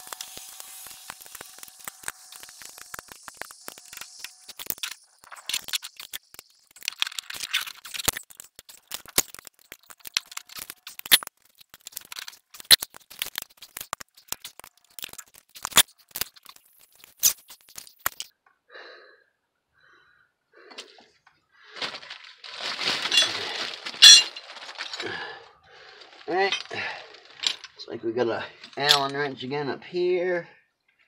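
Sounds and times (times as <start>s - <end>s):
metal tools clicking and rattling: 23.0s - 25.0s, 26.4s - 27.8s, 28.7s - 29.2s.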